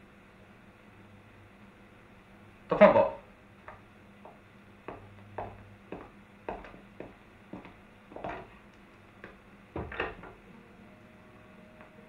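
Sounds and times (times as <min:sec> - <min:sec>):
footsteps on bare floor: 0:03.7 - 0:09.9.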